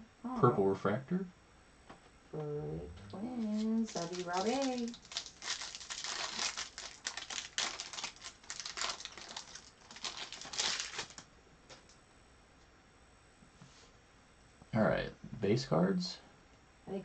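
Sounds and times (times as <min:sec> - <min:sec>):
foil wrapper tearing and crinkling: 0:03.4 - 0:11.2.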